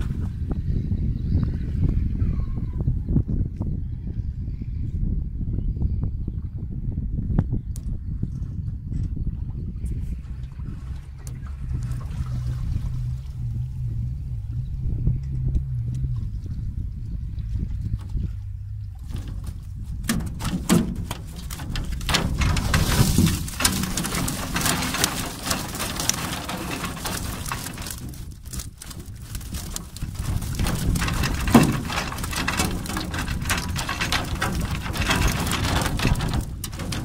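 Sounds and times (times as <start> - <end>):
fish flapping against hull: 17.6 - 37.0
water streaming and dripping: 19.0 - 37.0.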